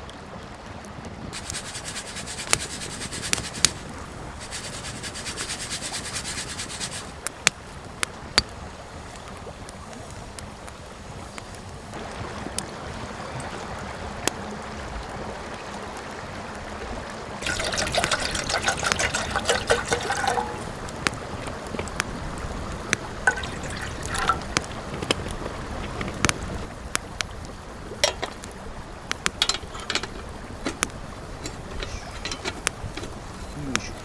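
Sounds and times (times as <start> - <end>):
wood fire crackling: 0.0 - 34.0
water pouring into metal kettle: 17.4 - 20.8, 23.2 - 24.7, 28.0 - 28.5.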